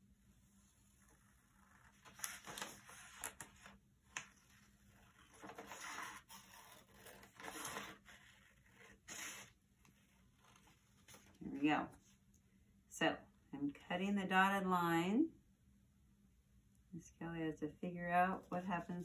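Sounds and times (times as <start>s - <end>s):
paper rustling: 1.4s - 11.4s.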